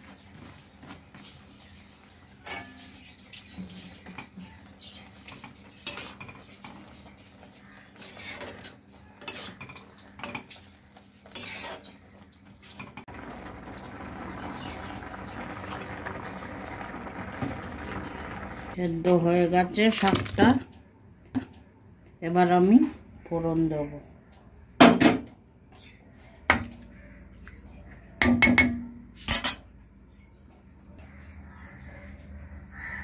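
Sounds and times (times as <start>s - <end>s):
spatula scraping a metal pan: 8.0s - 9.7s, 11.3s - 11.8s
broth bubbling: 13.1s - 18.8s.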